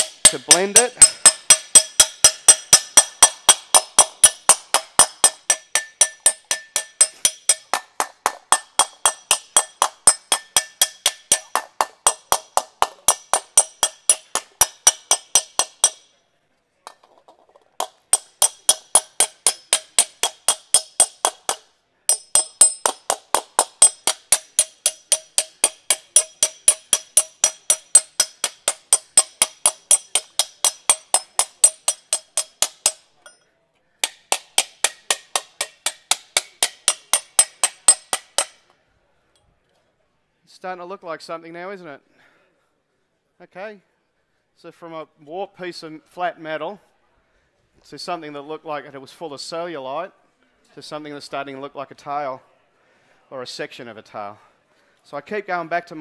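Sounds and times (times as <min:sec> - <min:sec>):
slapping tool striking sheet metal: 0:00.0 - 0:16.1, 0:17.8 - 0:33.4, 0:34.0 - 0:38.7.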